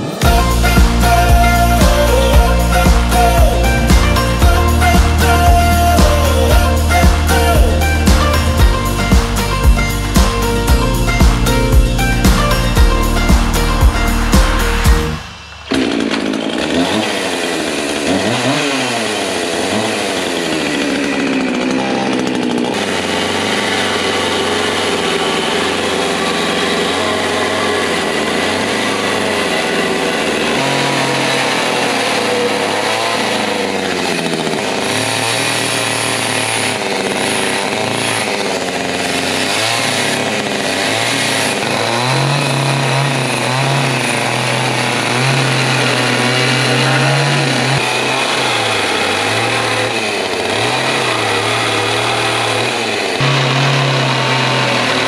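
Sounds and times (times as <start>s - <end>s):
chainsaw cutting wood: 0.0s - 55.0s.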